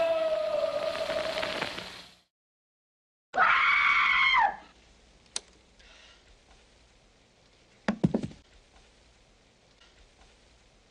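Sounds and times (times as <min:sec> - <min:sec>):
person screaming: 0:00.0 - 0:01.4, 0:03.4 - 0:04.6
quick knocks: 0:07.9 - 0:08.4.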